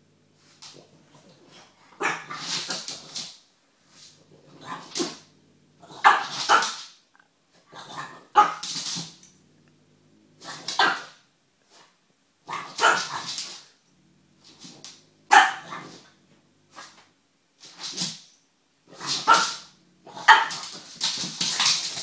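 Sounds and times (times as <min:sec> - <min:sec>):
dog barking: 0:06.0 - 0:06.8, 0:08.3 - 0:08.6, 0:10.7 - 0:11.2, 0:12.5 - 0:13.2, 0:15.3 - 0:16.0, 0:19.0 - 0:20.6.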